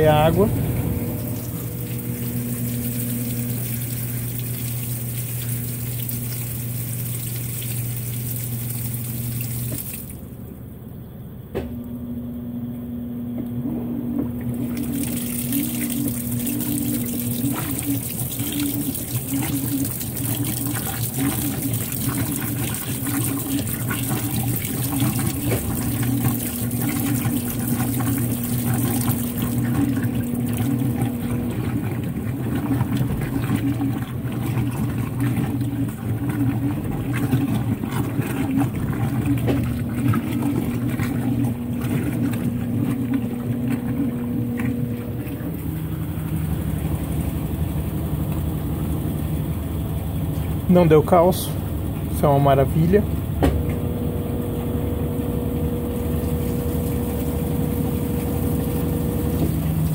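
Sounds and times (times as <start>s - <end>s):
washing machine motor hum: 0.0s - 59.9s
water splashing into drum: 0.3s - 10.2s, 14.3s - 45.0s, 55.7s - 59.9s.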